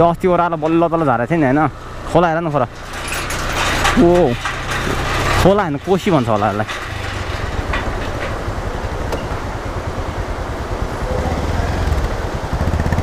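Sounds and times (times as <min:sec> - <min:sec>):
tyres rushing on steel deck: 0:00.0 - 0:12.3
motorcycle engine at low speed: 0:06.6 - 0:13.0.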